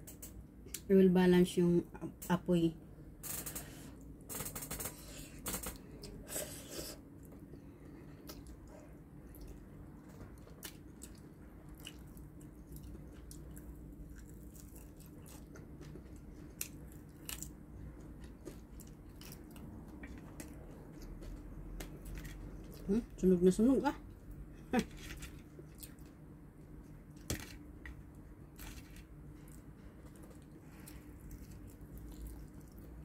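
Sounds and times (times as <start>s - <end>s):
biting and chewing: 9.3s - 22.9s.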